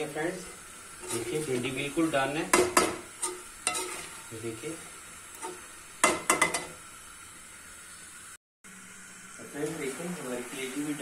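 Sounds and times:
faint sizzle: 0.0 - 11.0
metal spatula scraping a pan: 0.3 - 6.8.

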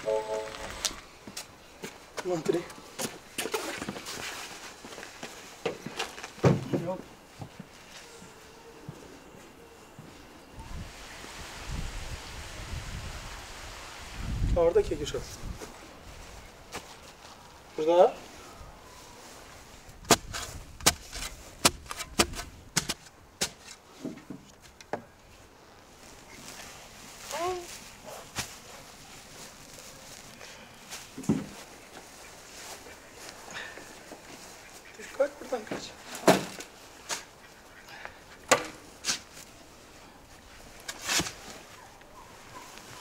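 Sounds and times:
spade scraping soil: 40.8 - 41.5.

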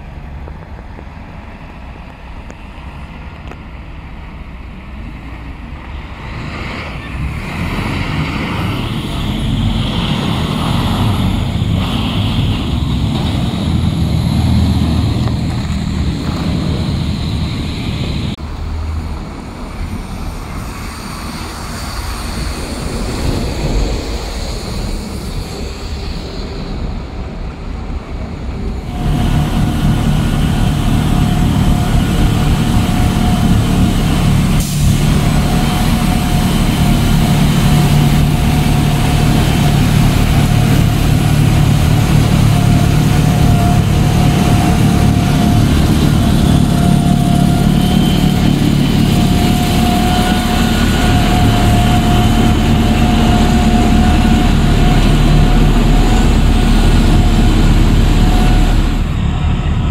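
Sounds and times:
snow blower engine drone: 5.1 - 18.4, 28.8 - 59.9.

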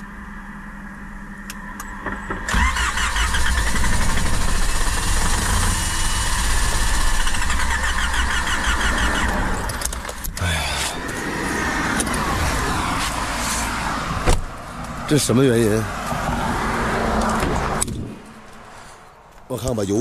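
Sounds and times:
starter cranking car engine: 2.5 - 10.3.

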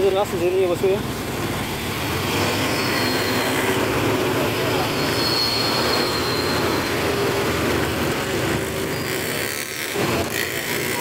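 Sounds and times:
traffic engines running: 0.0 - 11.0.

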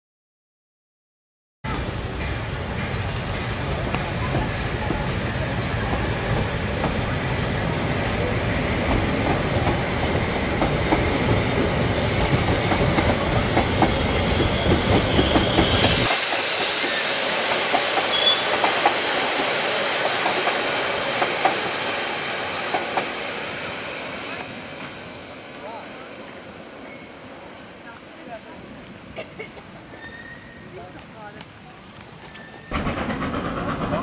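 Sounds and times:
low rumble of train coaches: 1.7 - 34.0
burst of hiss: 15.6 - 21.6
faint wheel squeal: 18.1 - 18.5, 29.9 - 32.8.

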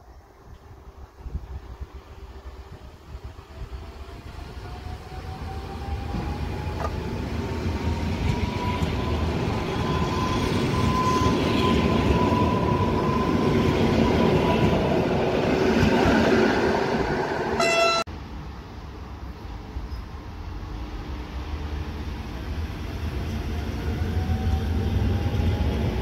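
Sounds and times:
wheels rumbling on rail: 0.4 - 26.0
electric train traction whine: 3.4 - 18.0.

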